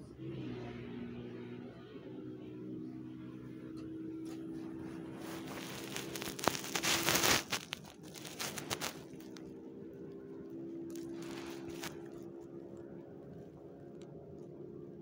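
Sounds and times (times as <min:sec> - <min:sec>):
fleece blanket rustling: 0:04.5 - 0:09.4, 0:10.9 - 0:12.1.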